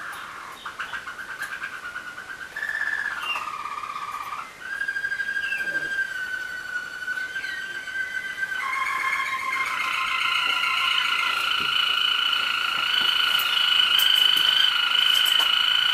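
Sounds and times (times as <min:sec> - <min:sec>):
canaries trilling: 0:00.0 - 0:15.9
canary whistle-like held note: 0:04.7 - 0:15.9.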